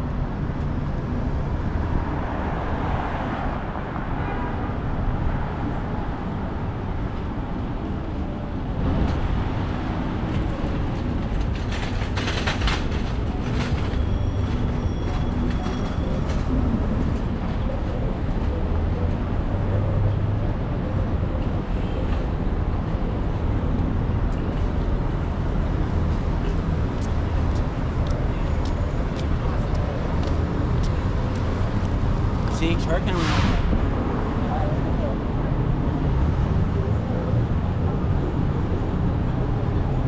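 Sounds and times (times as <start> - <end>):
low rumble of road traffic: 0.0 - 40.0
clattering noises: 10.3 - 17.3.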